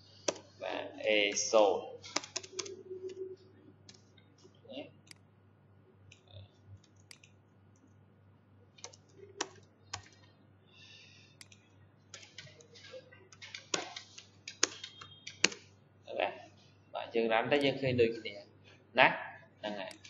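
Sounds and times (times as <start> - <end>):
keyboard typing: 0.2 - 4.4, 6.1 - 8.0, 8.7 - 10.4, 11.4 - 15.7, 19.8 - 20.0.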